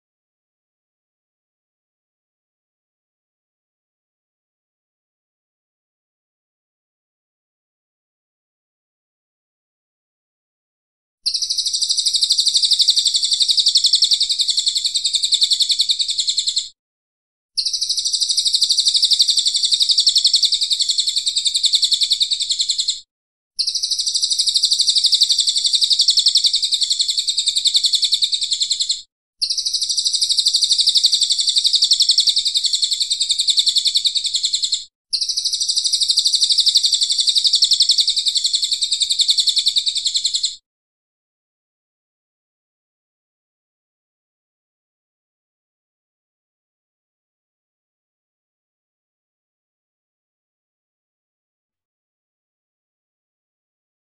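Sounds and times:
bird giving harsh rattling calls: 11.3 - 16.7, 17.6 - 23.0, 23.6 - 40.6.

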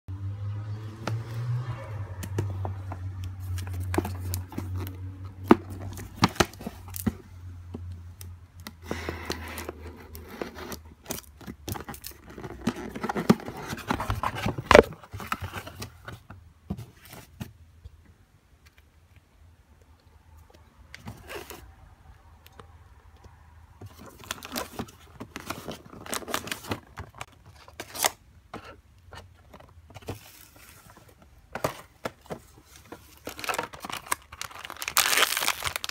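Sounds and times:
cardboard scraping: 8.8 - 17.5, 21.1 - 21.7
plastic wrapping crinkling: 33.2 - 35.9
packing tape tearing: 33.3 - 35.9.

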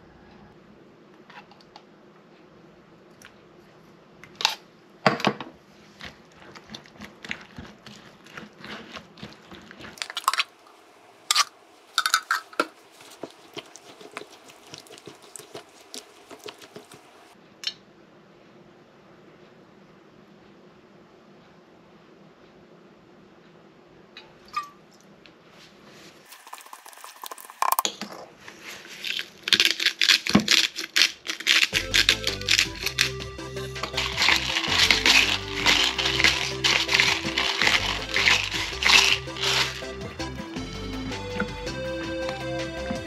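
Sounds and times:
wet squelches of tomato: 5.9 - 10.7, 12.7 - 17.4
spoon scraping a tin can: 11.3 - 17.1, 26.3 - 28.0, 28.8 - 33.2, 33.8 - 40.2.

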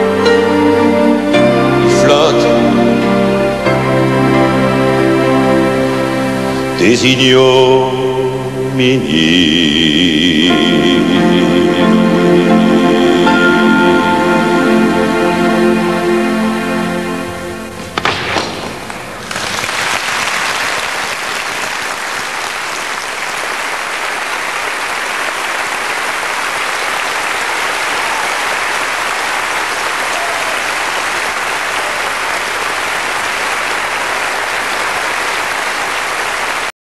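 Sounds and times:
audience applauding: 18.4 - 36.7.

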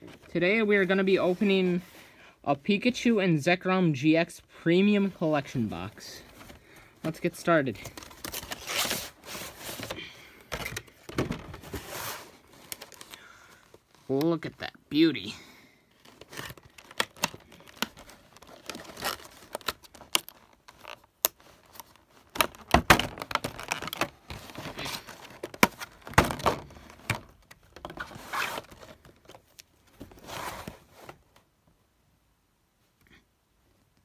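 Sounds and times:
plastic packaging crinkling: 6.2 - 13.3, 15.9 - 30.6.

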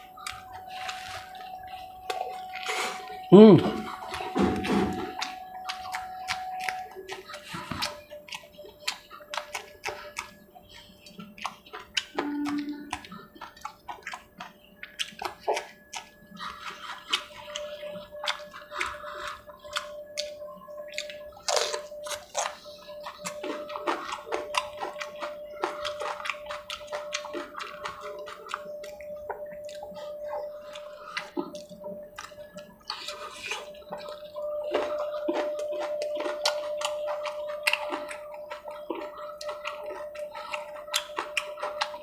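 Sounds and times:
chewing and lip smacking: 0.0 - 42.0
fingers squishing food: 0.0 - 42.0.

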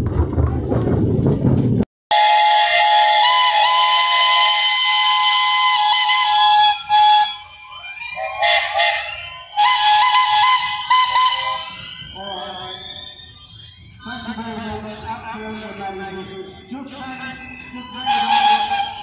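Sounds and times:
steam locomotive whistle blowing: 2.1 - 13.4, 17.8 - 19.0.

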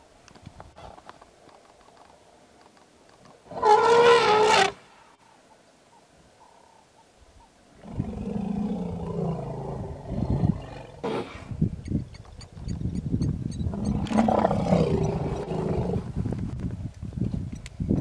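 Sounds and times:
elephant bellowing: 3.5 - 4.8
elephant trumpeting: 3.5 - 4.8.

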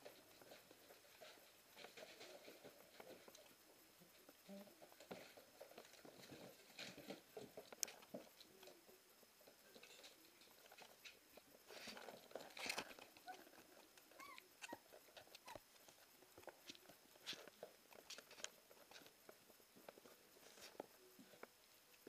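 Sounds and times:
puppy whimpering: 14.1 - 15.6.

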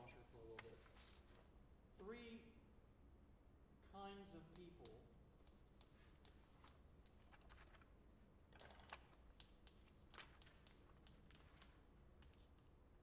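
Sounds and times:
faint clicks and scratchy strokes: 4.5 - 13.0.

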